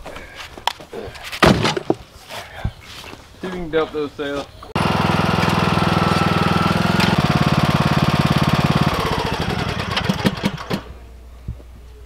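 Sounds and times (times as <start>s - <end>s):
lawn tractor engine running: 4.8s - 11.0s.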